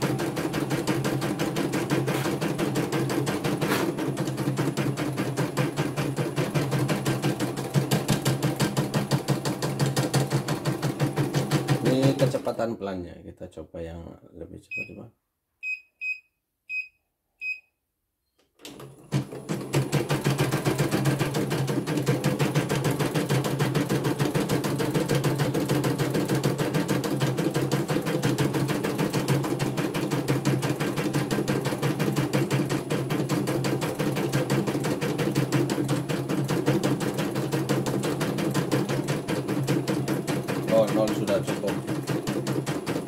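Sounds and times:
embroidery machine stitching: 0:00.0 - 0:12.5, 0:18.6 - 0:43.0
short beeps: 0:15.6 - 0:17.8.

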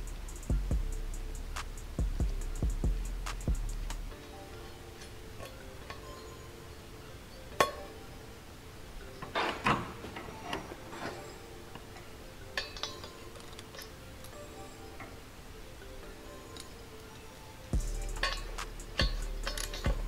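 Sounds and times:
small metallic clinks: 0:09.2 - 0:15.2, 0:16.0 - 0:20.0.

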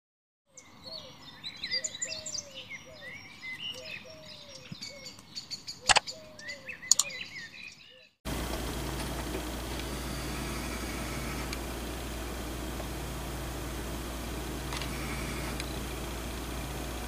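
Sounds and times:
birds chirping and whistling: 0:00.5 - 0:08.2, 0:09.8 - 0:11.6, 0:14.6 - 0:16.9
sharp clicks: 0:05.9 - 0:06.1, 0:06.9 - 0:07.2.

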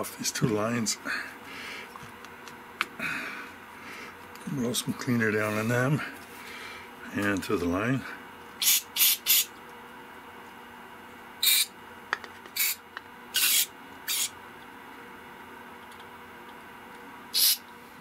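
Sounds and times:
aerosol can hissing: 0:08.6 - 0:09.5, 0:11.4 - 0:11.7, 0:12.6 - 0:12.8, 0:13.4 - 0:14.3, 0:17.4 - 0:17.6.

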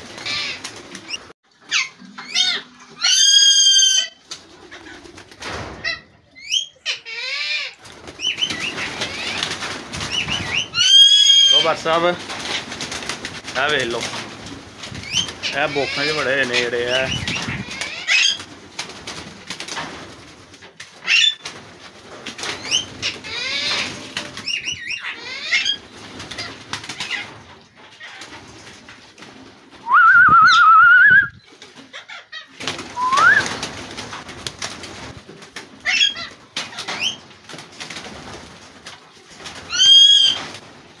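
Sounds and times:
parakeets screeching: 0:00.0 - 0:05.0, 0:05.8 - 0:12.8, 0:14.9 - 0:18.5, 0:21.0 - 0:21.5, 0:22.4 - 0:27.4, 0:31.9 - 0:33.4, 0:35.8 - 0:37.2, 0:39.7 - 0:40.5.

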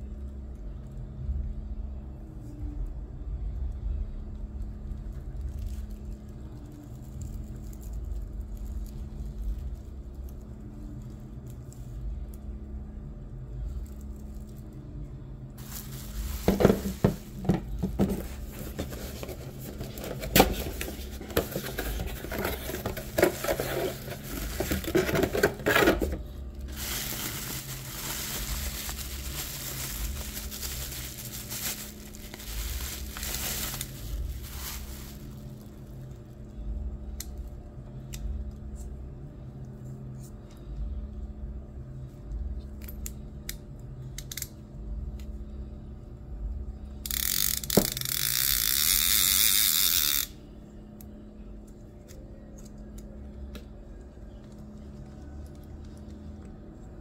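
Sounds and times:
rustling: 0:15.6 - 0:35.6
small metal clicks of fishing reel: 0:47.0 - 0:50.4.

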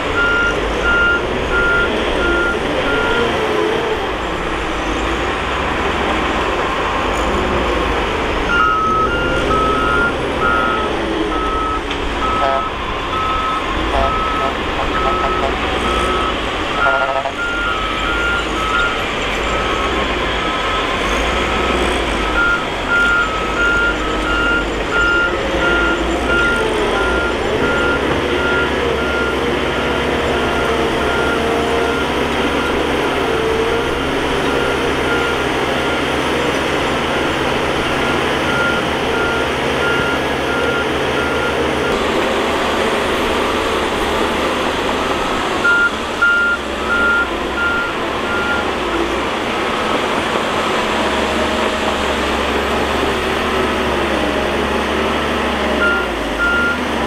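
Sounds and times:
bulldozer diesel engine running: 0:00.0 - 0:57.0
reversing alarm beeping: 0:00.1 - 0:03.8, 0:08.5 - 0:48.8, 0:55.6 - 0:56.9.

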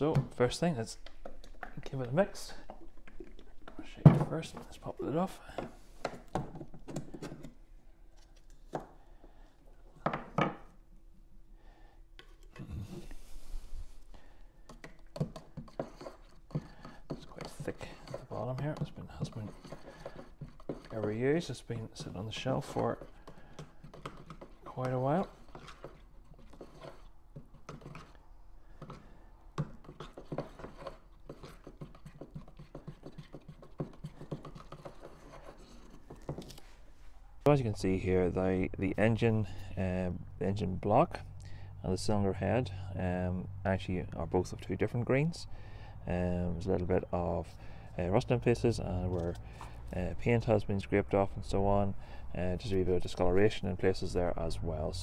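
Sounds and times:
screwdriver scraping paint tin: 0:14.6 - 0:28.2, 0:28.8 - 0:36.7.

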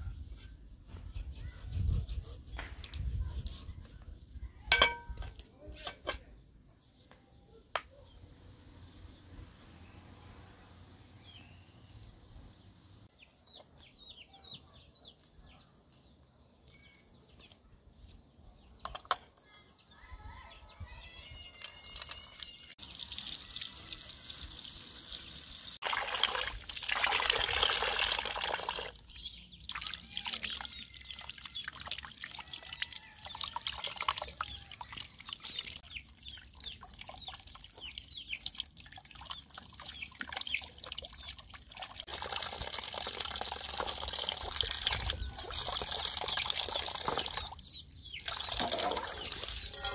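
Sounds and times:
small birds chirping: 0:10.9 - 0:25.8, 0:27.4 - 0:42.1, 0:44.1 - 0:49.9.

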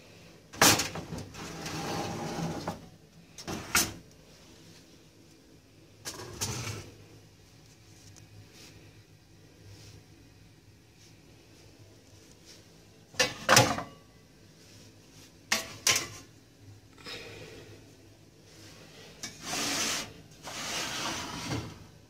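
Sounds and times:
drawer sliding open: 0:00.6 - 0:02.8, 0:06.1 - 0:06.9, 0:19.4 - 0:21.9.

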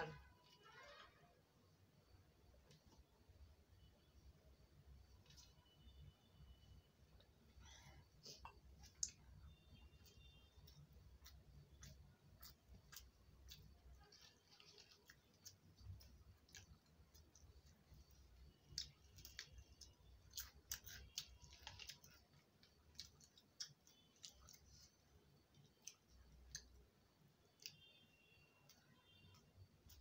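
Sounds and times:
chewing: 0:10.6 - 0:27.0.

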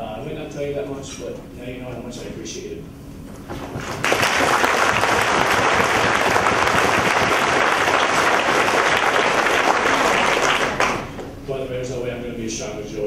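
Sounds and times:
audience applauding: 0:03.7 - 0:11.2.

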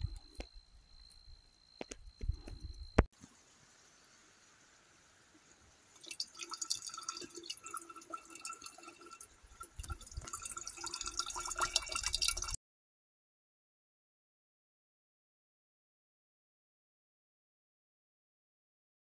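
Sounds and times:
ringing tone of filling bottle: 0:00.0 - 0:03.1, 0:06.0 - 0:12.6
water trickling into metal bottle: 0:05.4 - 0:12.6.

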